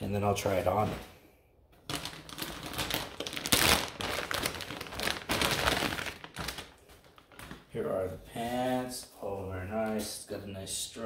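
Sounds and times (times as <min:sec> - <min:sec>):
packaging crinkling and rustling: 0:01.8 - 0:07.8.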